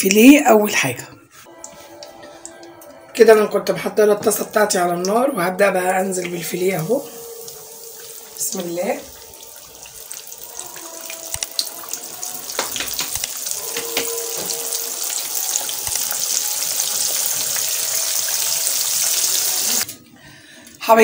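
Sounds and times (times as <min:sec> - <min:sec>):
fish deep-frying in oil: 0:06.4 - 0:19.9.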